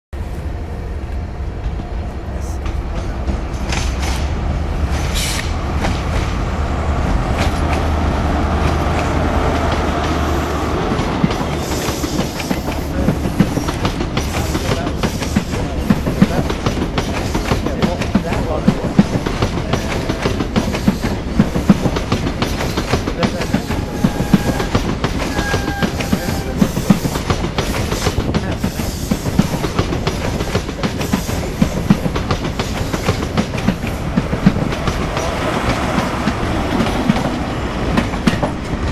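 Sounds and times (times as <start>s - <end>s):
train low rumble: 0.1s - 38.9s
train wheels clattering over rail joints: 2.6s - 6.4s, 7.2s - 38.9s
diesel engine passing: 4.3s - 11.6s.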